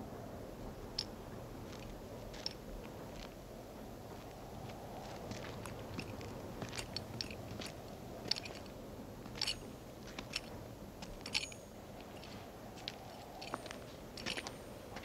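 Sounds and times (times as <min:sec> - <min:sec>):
light metallic clink: 0:06.0 - 0:14.6.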